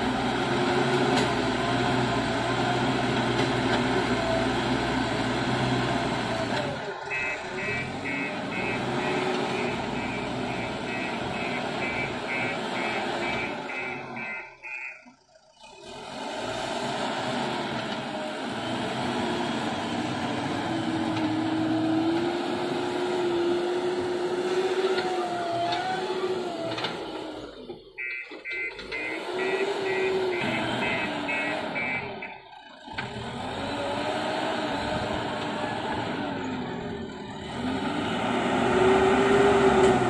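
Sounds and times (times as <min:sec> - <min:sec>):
diesel engine under load: 0:00.0 - 0:40.0
reversing alarm beeps: 0:07.1 - 0:15.2, 0:28.0 - 0:32.4.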